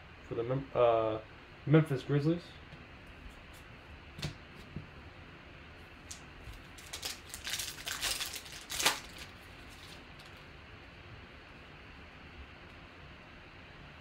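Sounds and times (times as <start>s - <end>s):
foil wrapper crinkling and tearing: 6.1s - 10.4s
wrapper crinkling and tearing: 6.1s - 10.4s.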